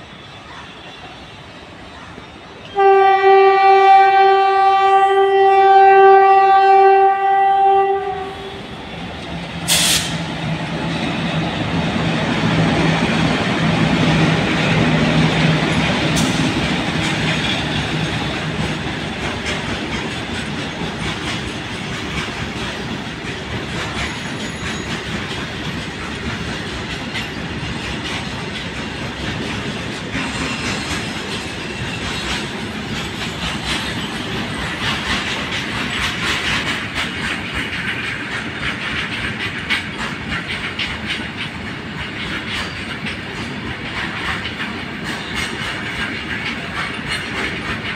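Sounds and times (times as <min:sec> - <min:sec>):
freight train rumble and wheel clatter: 0:00.0 - 0:47.9
locomotive horn blast: 0:02.7 - 0:08.6.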